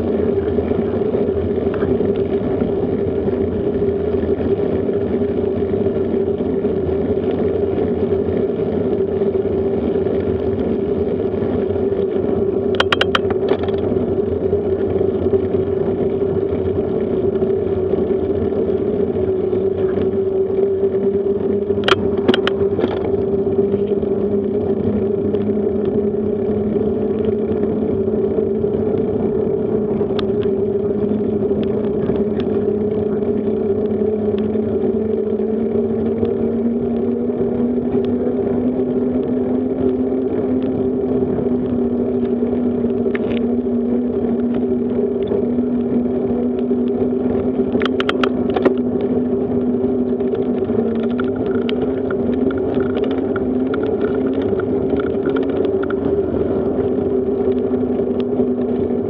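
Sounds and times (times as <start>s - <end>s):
bicycle tyres and drivetrain hum: 0.0s - 59.0s
wind on microphone: 0.0s - 59.0s
sharp rattling clicks: 12.7s - 13.9s, 21.7s - 23.1s, 47.7s - 49.1s, 50.1s - 56.2s.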